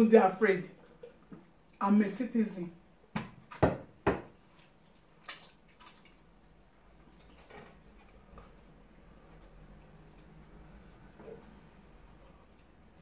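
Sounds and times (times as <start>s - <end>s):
sharp eating smacks: 5.2s - 6.2s.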